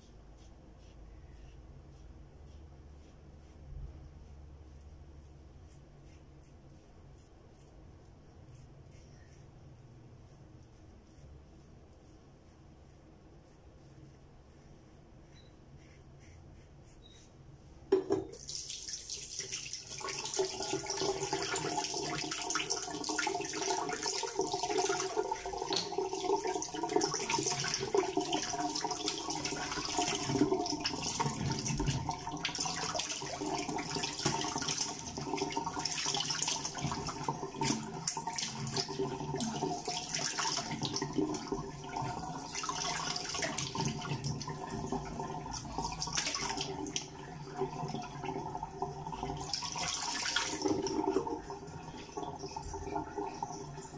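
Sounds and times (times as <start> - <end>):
tap running into sink: 17.9 - 18.5.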